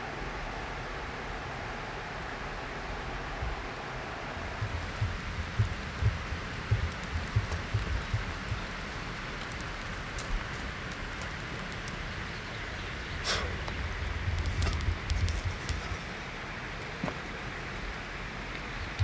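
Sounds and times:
campfire crackling and hissing: 0.0s - 19.0s
dull low thumps: 4.4s - 8.9s.

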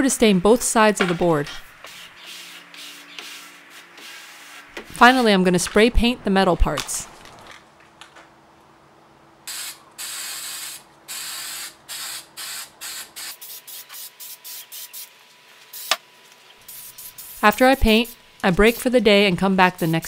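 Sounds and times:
spray-paint can hissing: 9.5s - 15.1s, 15.7s - 16.0s, 16.6s - 18.8s, 19.7s - 20.0s.

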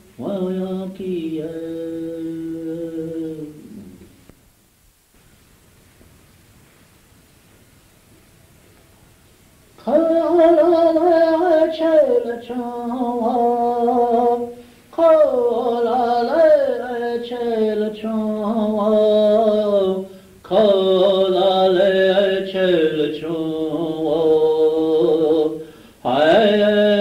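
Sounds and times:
person chanting unaccompanied: 0.0s - 4.3s, 9.8s - 27.0s.

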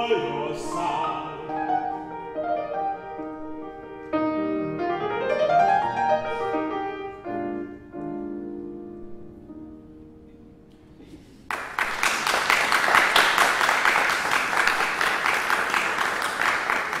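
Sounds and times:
piano chord: 0.0s - 10.9s
audience applause: 11.5s - 17.0s.

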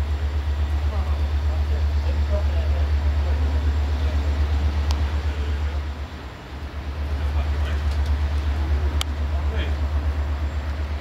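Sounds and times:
diesel locomotive engine idling: 0.0s - 11.0s.

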